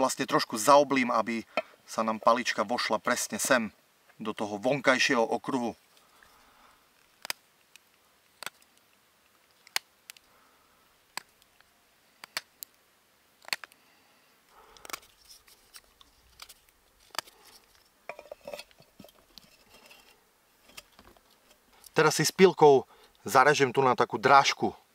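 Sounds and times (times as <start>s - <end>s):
knife carving wood: 7.0s - 10.2s, 13.4s - 13.8s, 14.7s - 17.8s.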